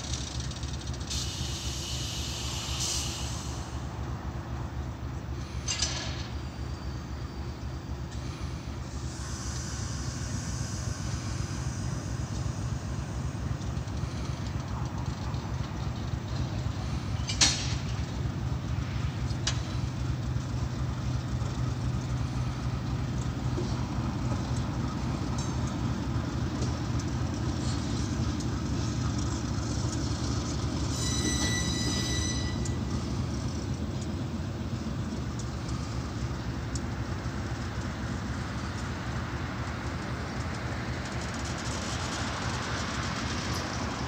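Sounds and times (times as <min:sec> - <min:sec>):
diesel locomotives idling: 0:00.0 - 0:44.0
high-pitched squeal: 0:30.8 - 0:33.2.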